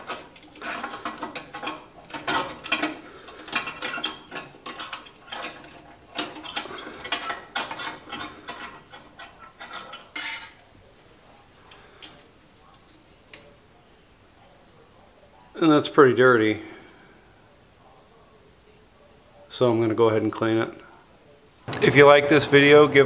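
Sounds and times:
metallic clinking and scraping: 0:00.0 - 0:10.7.

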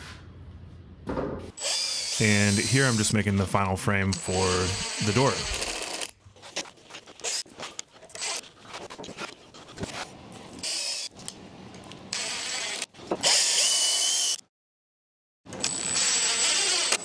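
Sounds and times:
cordless drill driving screws: 0:01.6 - 0:03.0, 0:04.1 - 0:06.1, 0:12.1 - 0:14.4, 0:15.6 - 0:17.0.

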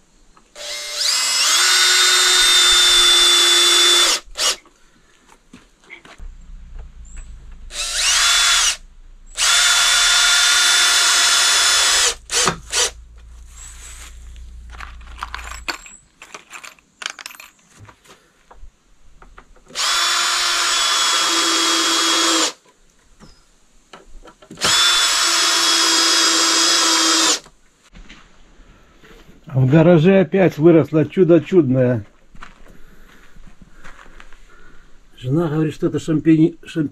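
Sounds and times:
cordless drill motor whine: 0:00.5 - 0:04.6, 0:07.0 - 0:14.6, 0:19.8 - 0:22.6, 0:24.6 - 0:27.5.

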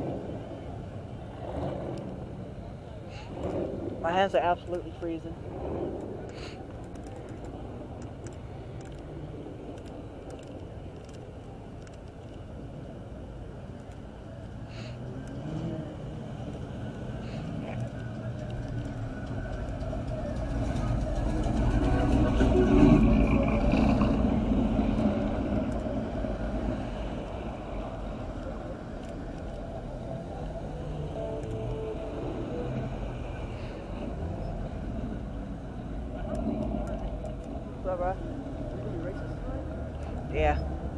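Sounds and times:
car engines idling: 0:00.0 - 0:40.9
vehicle driving past: 0:14.7 - 0:40.9.

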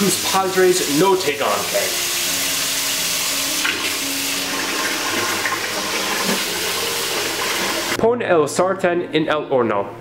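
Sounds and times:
dishes being washed: 0:00.0 - 0:08.0
tap running into sink: 0:03.6 - 0:08.0.

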